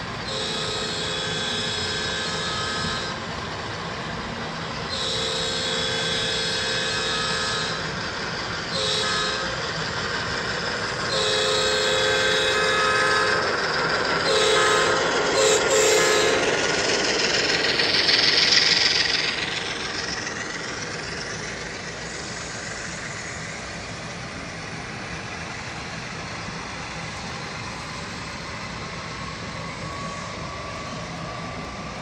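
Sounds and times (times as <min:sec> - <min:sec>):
diesel engine rumble: 0:00.0 - 0:32.0
model train horn blasts: 0:00.1 - 0:03.3, 0:04.8 - 0:08.0, 0:08.7 - 0:09.8, 0:11.0 - 0:17.0.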